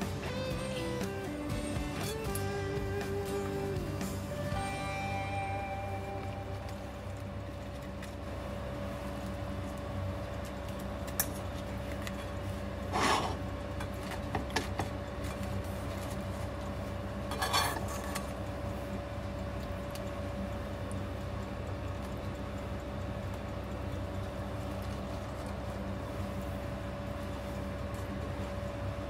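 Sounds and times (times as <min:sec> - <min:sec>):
steady hum: 0:00.0 - 0:29.0
short rustling scrapes: 0:12.9 - 0:13.4.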